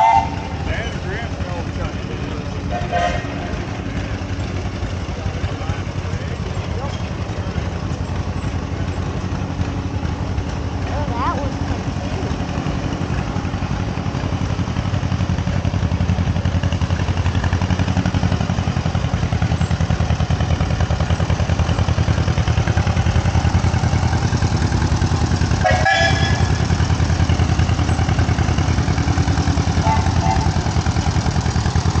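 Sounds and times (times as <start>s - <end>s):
tractor engine pulsing exhaust: 0.0s - 32.0s
short high toot: 25.6s - 26.7s.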